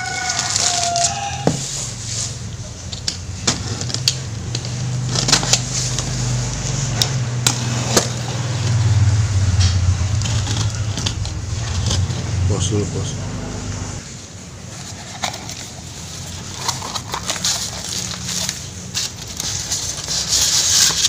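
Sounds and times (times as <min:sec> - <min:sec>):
low motor hum: 0:01.9 - 0:14.2.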